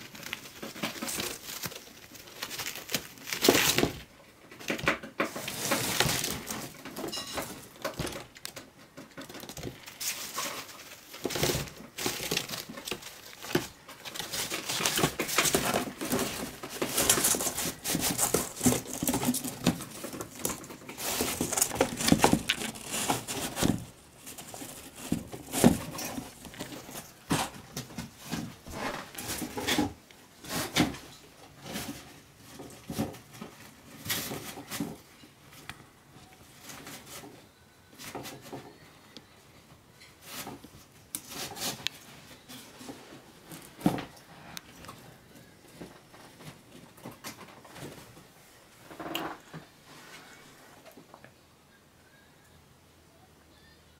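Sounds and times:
tissue paper tearing and crinkling: 0:00.0 - 0:04.0, 0:21.0 - 0:27.1.

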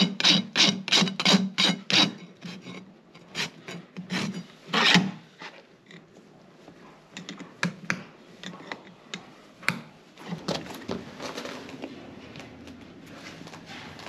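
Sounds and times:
soft rustling shuffle: 0:10.8 - 0:14.0.

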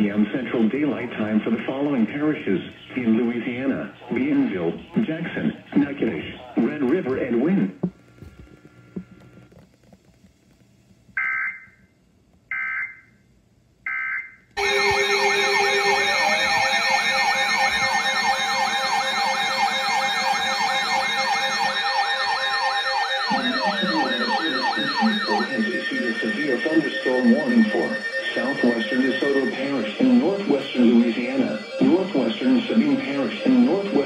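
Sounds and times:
digital data burst tones: 0:14.6 - 0:34.0
sirens wailing: 0:14.6 - 0:34.0.

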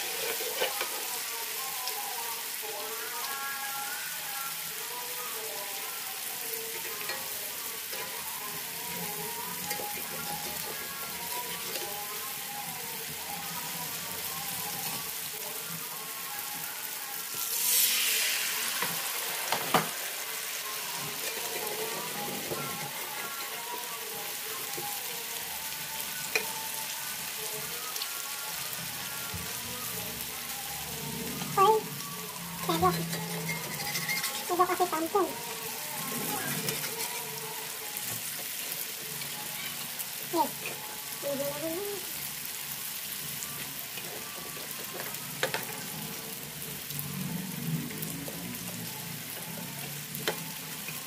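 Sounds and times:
batter sizzling in hot oil: 0:00.0 - 0:51.0.

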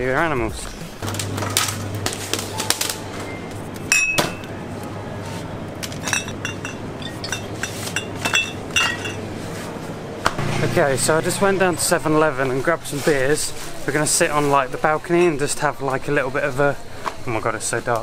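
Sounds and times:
steady low hum: 0:00.6 - 0:17.4
glass bottles clinking: 0:03.9 - 0:04.5, 0:05.9 - 0:09.3.

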